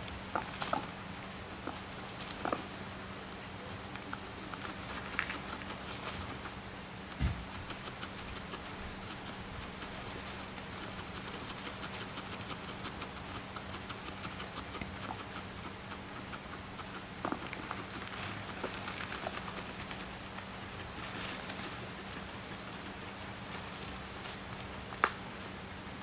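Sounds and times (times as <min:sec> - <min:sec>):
guinea pig grunting: 0:00.0 - 0:02.9, 0:03.9 - 0:25.1
dry hay rustling: 0:04.4 - 0:15.4, 0:16.8 - 0:25.6.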